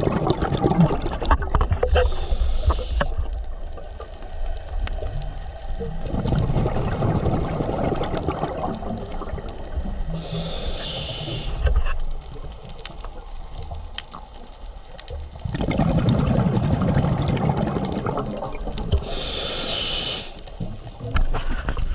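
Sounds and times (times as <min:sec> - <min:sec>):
exhaled bubbles underwater: 0:00.0 - 0:21.9
regulator inhale hiss: 0:01.8 - 0:03.4, 0:10.0 - 0:12.0, 0:18.9 - 0:20.6.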